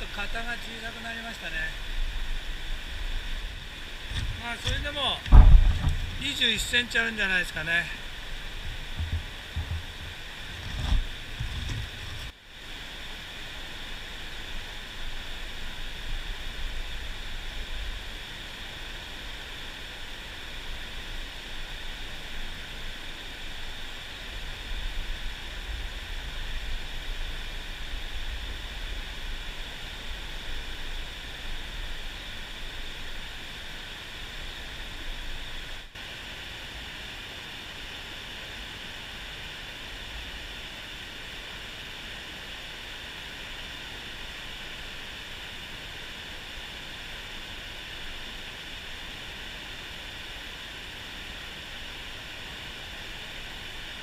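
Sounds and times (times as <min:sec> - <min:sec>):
stream rushing over rocks: 0:00.0 - 0:54.0
low thumps: 0:04.1 - 0:06.7.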